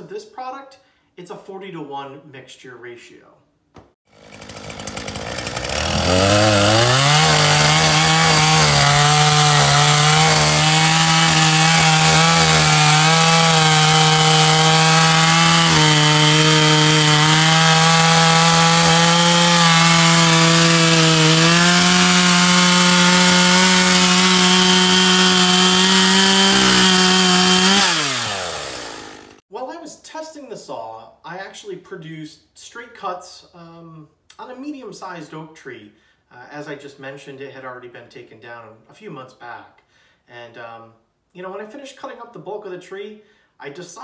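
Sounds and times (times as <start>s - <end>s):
chainsaw cutting a log: 4.1s - 29.4s.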